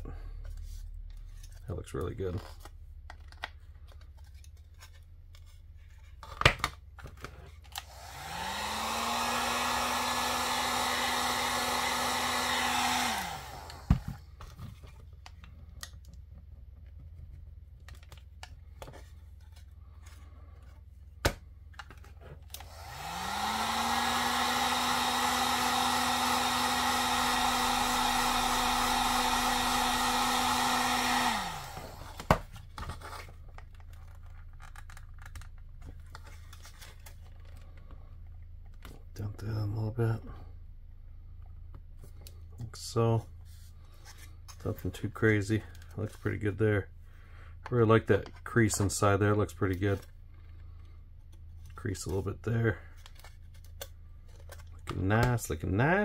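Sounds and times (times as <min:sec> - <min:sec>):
heat gun fan blowing: 0:07.7 - 0:14.4, 0:22.4 - 0:32.5.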